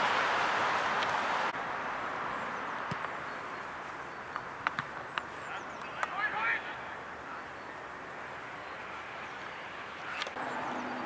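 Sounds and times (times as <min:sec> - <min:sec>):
steady outdoor hiss: 0:00.0 - 0:11.0.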